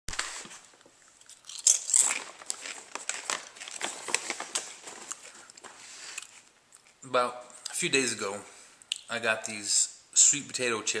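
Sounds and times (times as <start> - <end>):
chip bag crinkling: 0.1 - 7.0.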